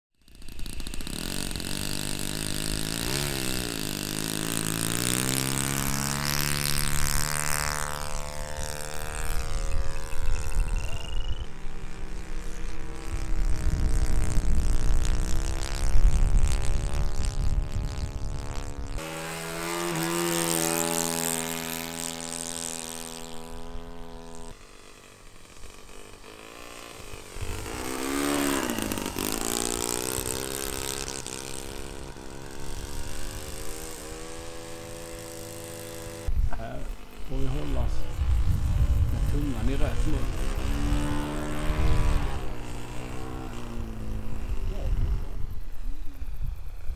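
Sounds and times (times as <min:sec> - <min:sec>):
model airplane engines flying past: 0:00.2 - 0:46.9
wind gusts buffeting microphone: 0:08.1 - 0:19.0, 0:37.4 - 0:46.9.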